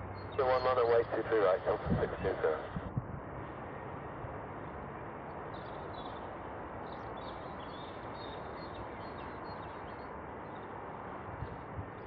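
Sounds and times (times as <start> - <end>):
jet engines of landing plane: 0.3 - 5.6.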